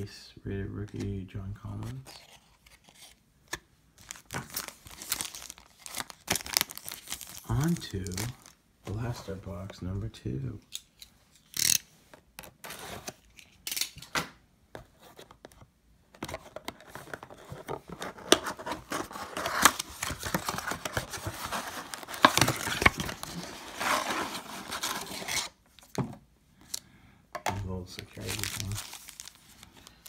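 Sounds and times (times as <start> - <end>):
tearing and crinkling foil wrappers: 4.0 - 8.6, 18.8 - 25.6, 28.0 - 30.0.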